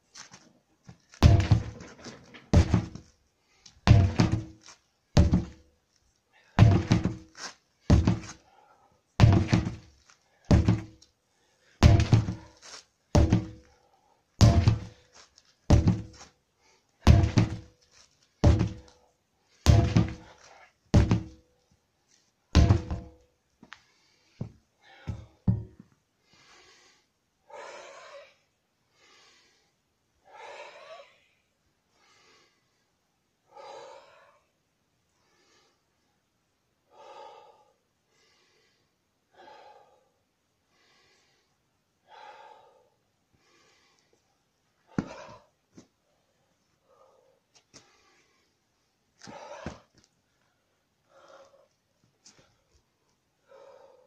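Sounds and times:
sledgehammer thudding on tyres: 1.1s - 3.1s, 3.8s - 5.6s, 6.6s - 8.4s, 9.2s - 11.0s, 11.8s - 13.7s, 14.4s - 15.1s, 15.7s - 16.3s, 17.0s - 17.8s, 18.4s - 18.9s, 19.6s - 21.4s, 22.6s - 23.2s, 24.4s - 25.8s, 44.9s - 45.4s
heavy breathing: 26.2s - 31.3s, 33.5s - 34.5s, 36.9s - 44.2s, 46.8s - 48.6s, 49.2s - 50.0s, 51.0s - 52.7s, 53.4s - 54.0s.

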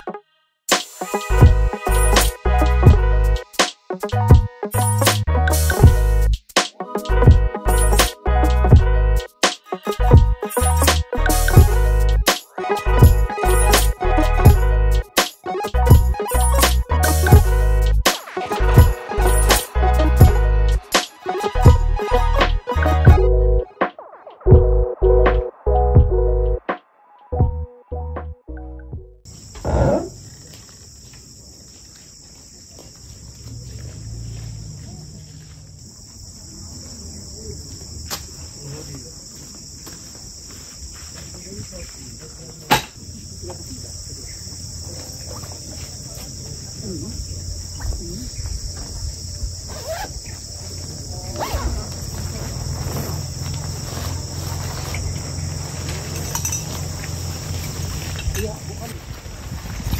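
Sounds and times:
high-pitched insect chorus: 0.8s - 8.6s, 29.3s - 59.9s
gear rustling and knocking: 52.0s - 58.7s
wind rumble on microphone: 54.4s - 59.9s.

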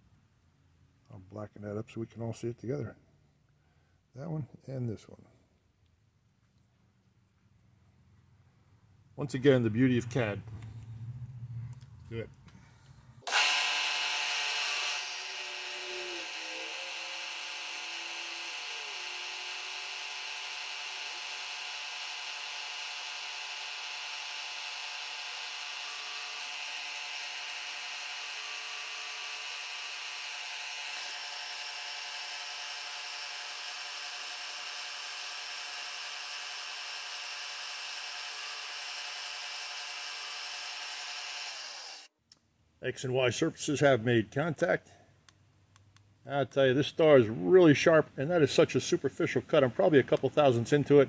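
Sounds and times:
milling machine saw whine: 13.3s - 42.1s.

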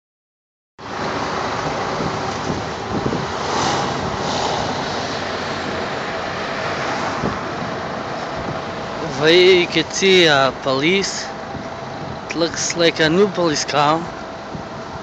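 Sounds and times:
cars driving past: 0.8s - 15.0s
wind rushing on microphone: 1.0s - 10.1s, 10.8s - 12.5s, 14.1s - 15.0s.

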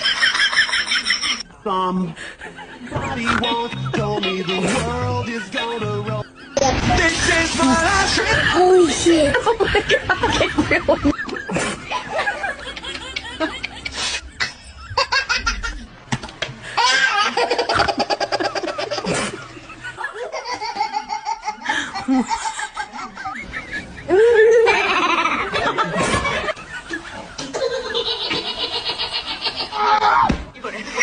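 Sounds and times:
baby laughing: 16.8s - 19.4s, 27.4s - 30.2s.

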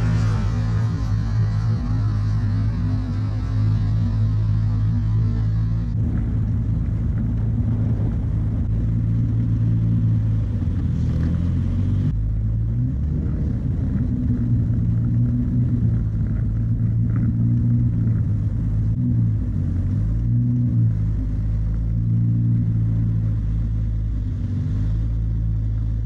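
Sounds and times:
car engine running: 0.0s - 26.0s.

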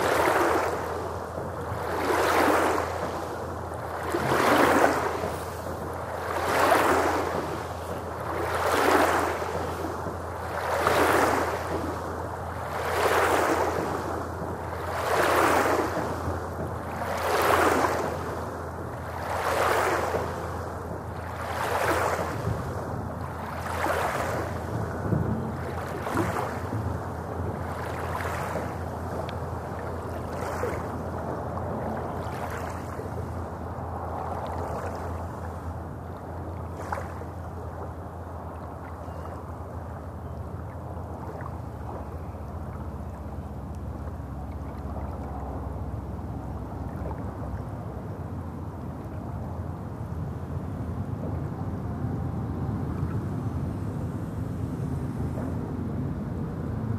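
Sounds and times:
waves washing onto pebble shore: 0.0s - 1.0s.

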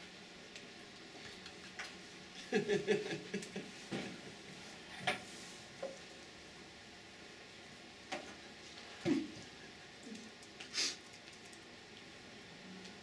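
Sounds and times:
room hum: 0.0s - 13.0s
man chuckling: 2.4s - 4.2s.

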